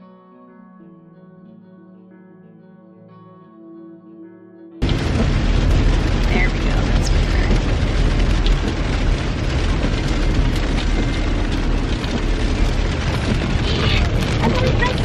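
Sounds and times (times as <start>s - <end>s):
car road noise rumble: 4.8s - 15.0s.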